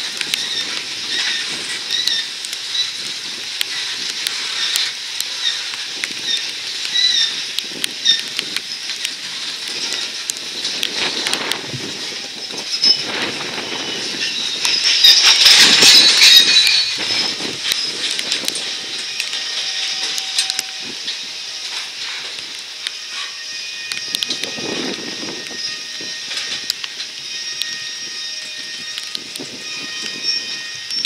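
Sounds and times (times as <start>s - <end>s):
high-pitched wheel squeal: 4.5s - 9.1s, 11.5s - 31.0s.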